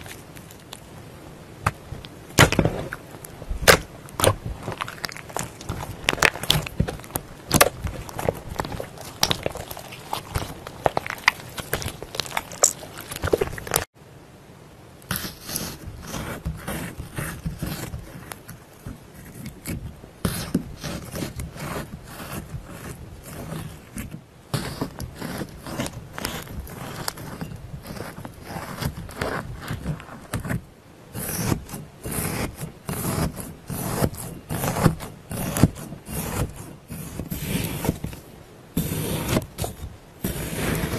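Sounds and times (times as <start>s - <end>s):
slime squishing: 0.0s - 1.0s, 1.6s - 13.9s, 15.1s - 30.6s
tool scraping gel block: 1.7s - 13.9s, 15.1s - 38.2s, 38.8s - 40.9s.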